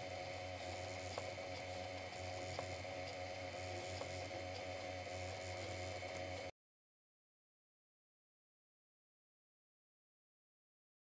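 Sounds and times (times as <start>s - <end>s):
laser engraver humming: 0.0s - 6.5s.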